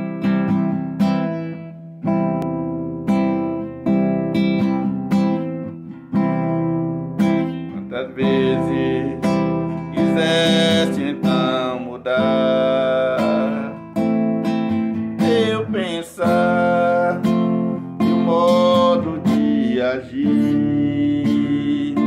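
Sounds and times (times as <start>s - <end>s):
acoustic guitar strumming chords: 0.0s - 22.0s
man singing: 7.4s - 14.2s, 14.9s - 22.0s.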